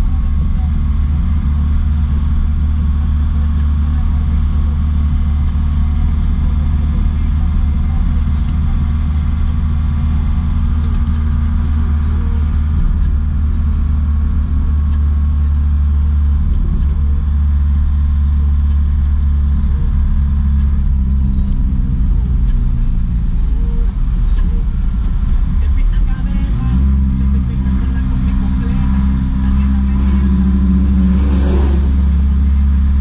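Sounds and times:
diesel truck engine droning: 0.0s - 33.0s.

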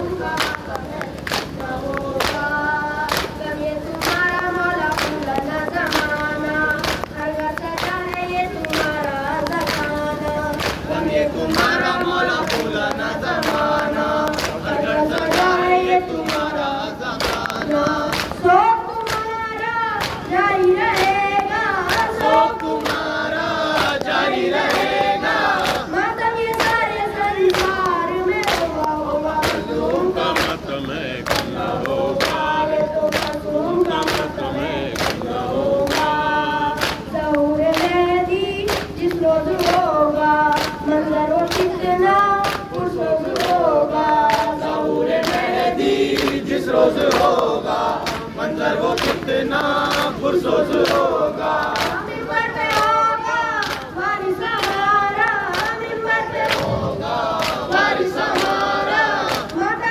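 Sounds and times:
crowd joining in chanting: 0.0s - 59.9s
voices chanting a lament: 0.0s - 59.9s.

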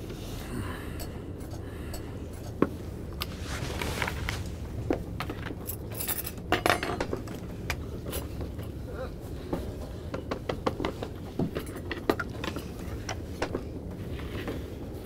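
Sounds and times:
low steady hum: 0.0s - 15.0s
dishes and cutlery clinking: 5.4s - 7.4s.

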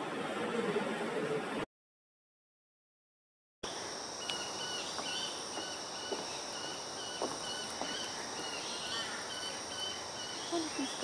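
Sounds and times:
insects droning: 3.6s - 11.0s.

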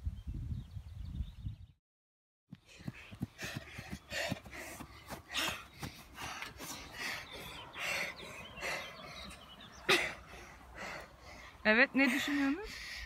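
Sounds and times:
person breathing hard: 2.6s - 11.6s, 12.2s - 13.0s.

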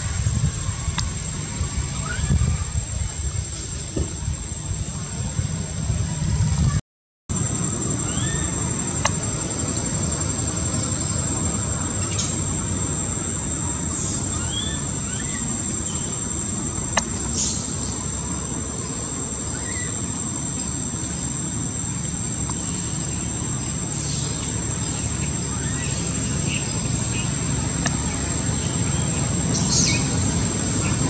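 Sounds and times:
low background rumble: 0.0s - 31.0s
high-pitched insect drone: 7.3s - 31.0s.

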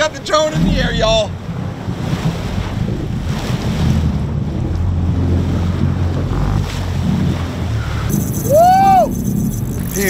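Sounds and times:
boat engine running: 0.0s - 10.0s
sea noise: 0.0s - 10.0s
wind: 0.0s - 10.0s
rising and falling whoop: 8.3s - 9.3s.

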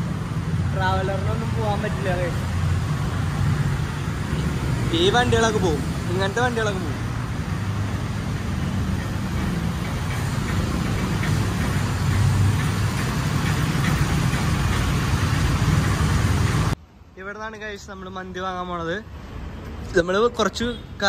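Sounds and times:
motorcycle engines idling in traffic: 0.0s - 16.8s.

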